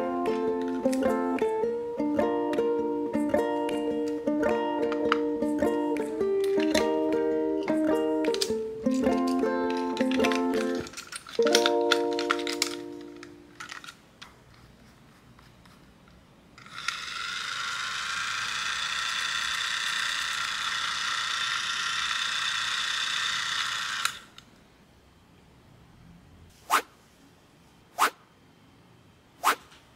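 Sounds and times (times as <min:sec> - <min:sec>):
toy train motor whirring: 0:08.2 - 0:13.9, 0:16.6 - 0:24.4.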